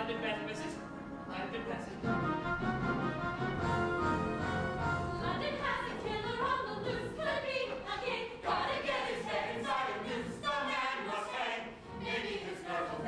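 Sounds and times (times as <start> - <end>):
chorus of singers: 3.9 - 13.0.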